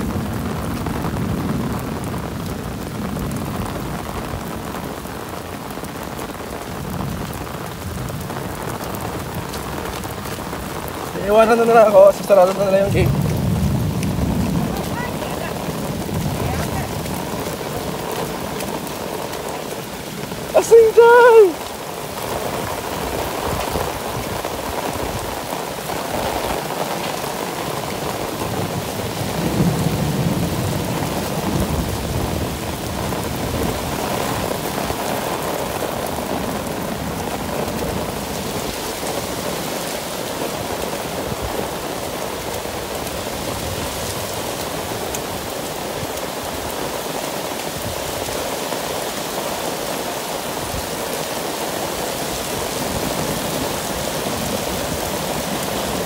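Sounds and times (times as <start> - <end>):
low rumble of thunder: 0.0 - 20.5, 22.2 - 39.3
heavy rain on pavement: 0.0 - 56.0.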